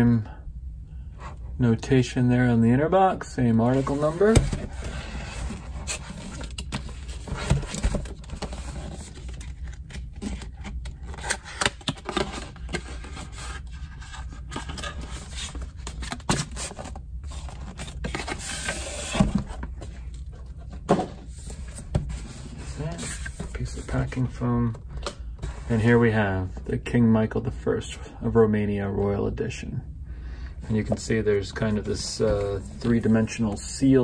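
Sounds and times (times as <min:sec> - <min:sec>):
cardboard scraping and rubbing: 0:03.6 - 0:09.5, 0:12.1 - 0:24.3.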